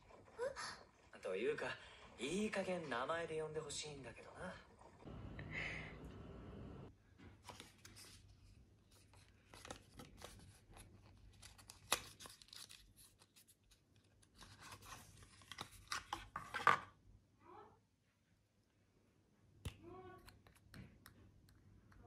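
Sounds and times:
paper rustling and tearing: 0:07.4 - 0:16.7.

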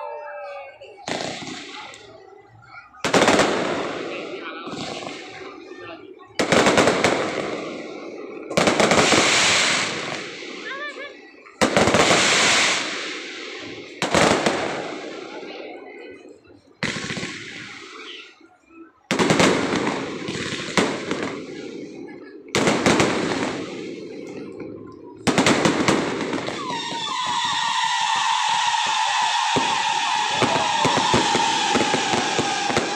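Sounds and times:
firework shells bursting: 0:25.2 - 0:32.9.

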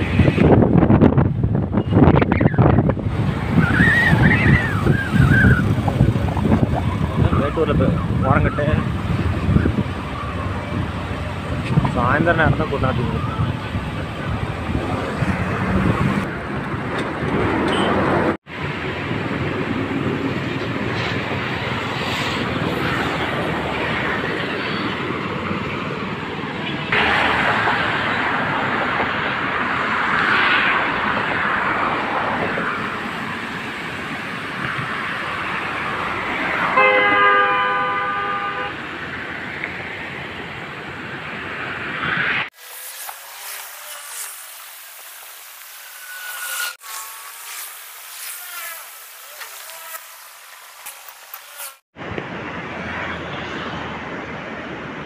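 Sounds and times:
vehicle horn: 0:17.6 - 0:18.1, 0:36.7 - 0:38.8.

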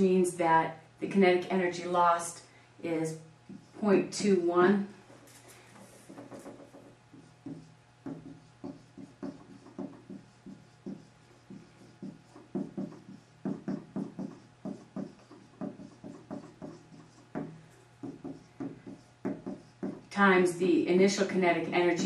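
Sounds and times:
marker writing on whiteboard: 0:03.5 - 0:04.3, 0:05.8 - 0:20.2.

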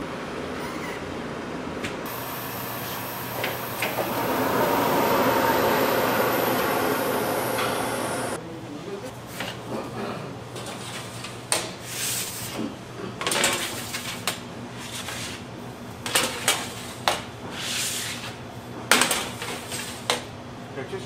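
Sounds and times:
machine hum: 0:02.1 - 0:08.4.

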